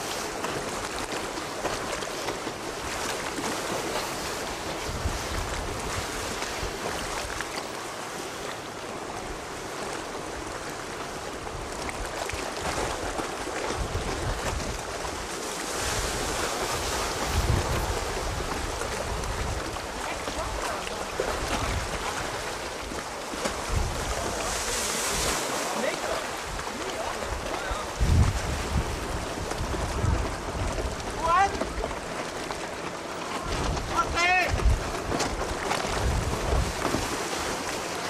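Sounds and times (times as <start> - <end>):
choppy sea rushing: 0.0 - 38.0
wind buffeting microphone: 4.1 - 7.3, 11.5 - 32.1, 33.4 - 37.2.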